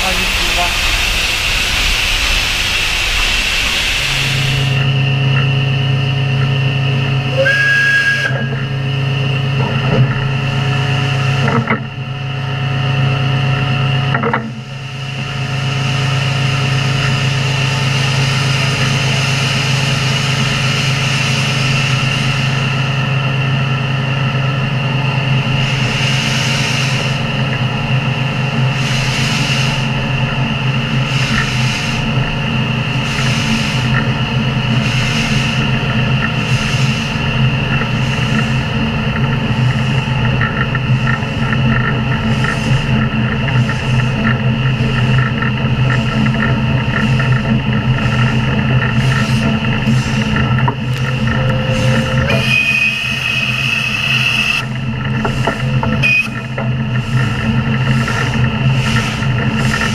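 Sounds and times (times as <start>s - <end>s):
steam hissing from locomotive: 0.0s - 5.0s, 7.3s - 8.8s, 14.6s - 23.2s, 25.4s - 40.3s, 42.2s - 45.3s, 45.9s - 59.9s
steady low hum: 0.0s - 59.9s.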